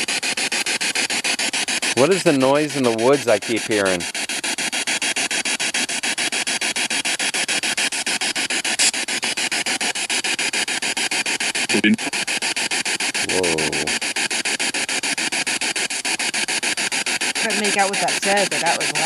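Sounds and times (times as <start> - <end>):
choppy radio static pulsing: 0.0 - 19.0
voice-like fragment: 11.7 - 12.1, 13.3 - 13.9.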